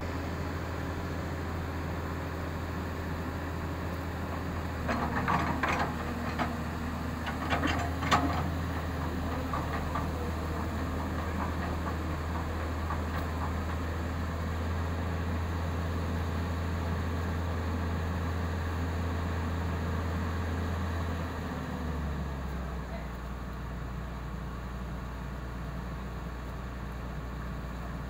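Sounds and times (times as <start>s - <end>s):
excavator diesel engine idling: 0.0s - 28.0s
metallic clanks and rattles: 4.3s - 14.2s.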